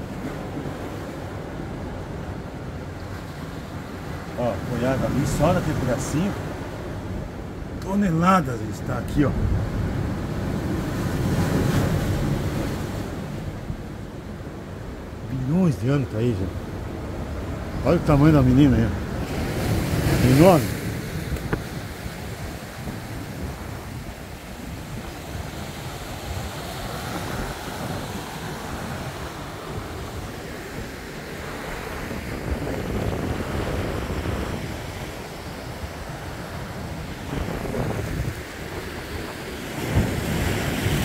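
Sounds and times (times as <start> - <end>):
surf washing against rocks: 0.0 - 41.0
wind rumbling on microphone: 8.6 - 15.3, 16.4 - 41.0.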